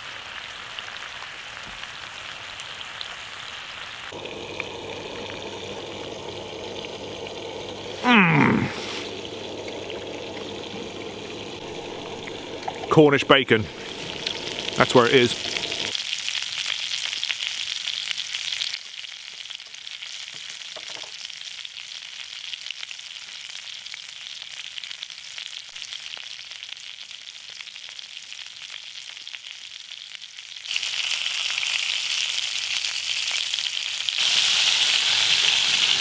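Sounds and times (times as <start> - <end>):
sausages sizzling in a skillet: 0.0 - 36.0.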